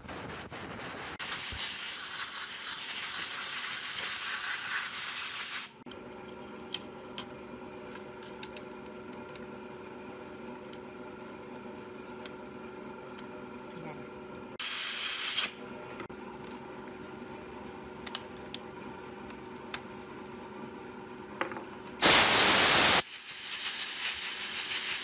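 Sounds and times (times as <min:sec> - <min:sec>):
compressed air hissing: 0:22.0 - 0:25.0.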